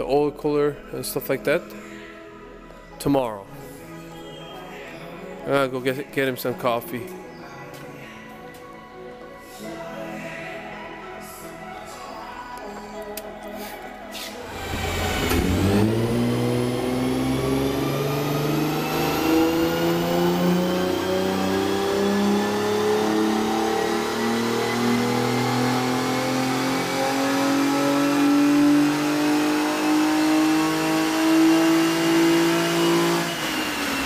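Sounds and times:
car engine under load: 0:14.4 - 0:34.0.

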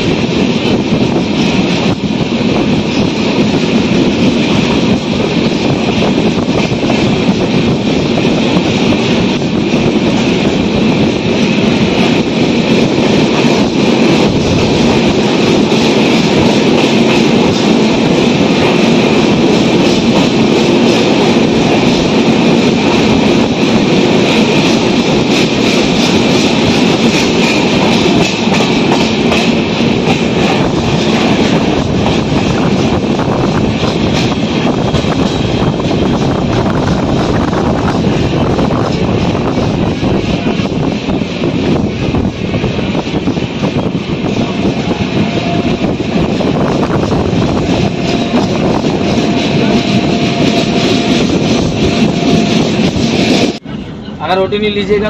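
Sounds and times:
clatter over track: 0:00.0 - 0:53.6
train wheels rumbling on rails: 0:00.0 - 0:55.0.

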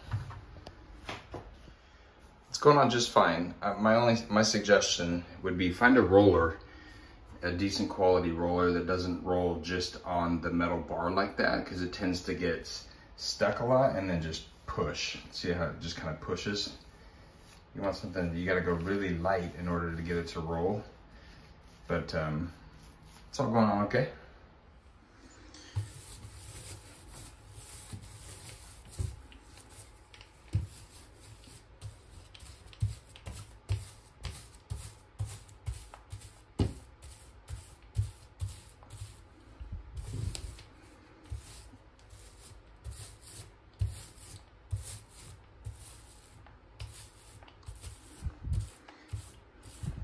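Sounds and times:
paint roller soft thump: 0:25.7 - 0:39.2, 0:41.3 - 0:50.0
paint roller rubbing hiss: 0:25.7 - 0:39.3, 0:40.0 - 0:50.0.

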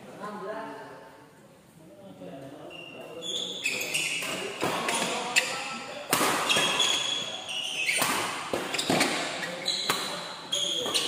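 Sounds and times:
shoes squeaking: 0:02.7 - 0:11.0.

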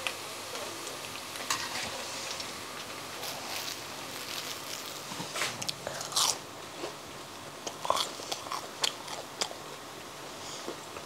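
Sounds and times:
crunchy food being chewed: 0:01.0 - 0:07.0, 0:07.6 - 0:09.8.

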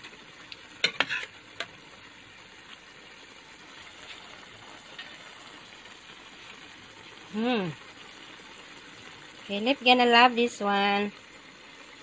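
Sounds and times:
liquid bubbling in a pan: 0:00.0 - 0:12.0
metal spoon clinking on pan: 0:00.8 - 0:01.4.

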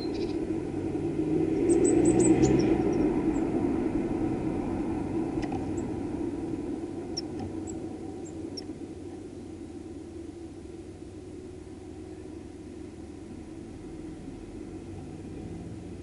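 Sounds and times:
high bird chirps: 0:00.0 - 0:00.4, 0:01.6 - 0:03.4
low rumble: 0:00.0 - 0:16.0.

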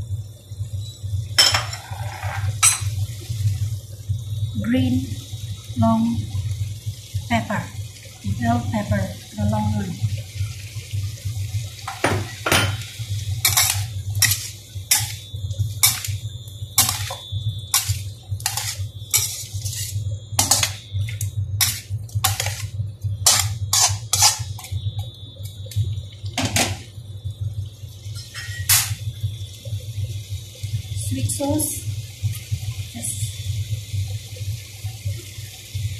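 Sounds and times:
steady low hum: 0:00.0 - 0:35.9
metal spatula scraping wok: 0:13.4 - 0:15.2, 0:15.8 - 0:16.2, 0:16.8 - 0:20.9, 0:21.6 - 0:24.6.

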